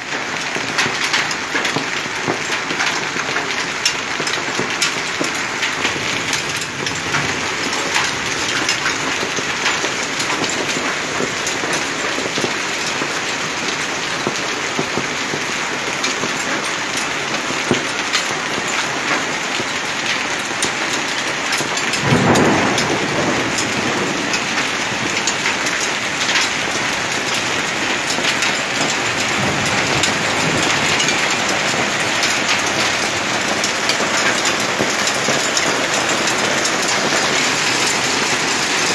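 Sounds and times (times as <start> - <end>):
hailstones striking hard surfaces: 0.1 - 38.9
heavy rain hissing: 22.0 - 38.9.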